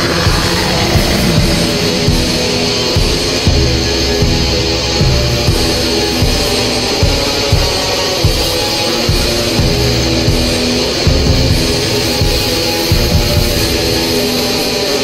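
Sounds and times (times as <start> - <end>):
low drum hits: 0.0 - 5.7
distorted guitar: 0.0 - 15.0.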